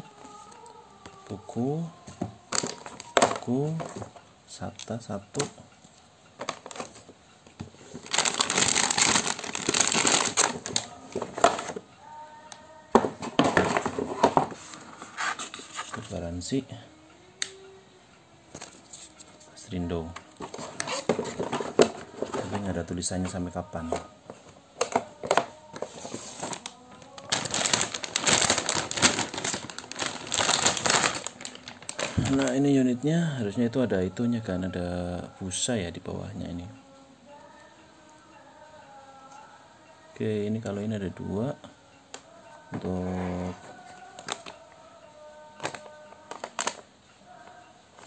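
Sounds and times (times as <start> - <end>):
metallic bag crinkling: 7.8 - 11.8, 25.8 - 32.6.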